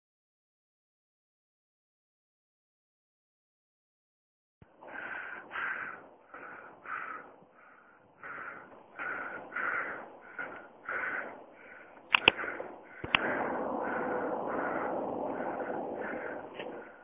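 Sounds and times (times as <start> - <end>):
man panting hard: 4.7 - 17.0.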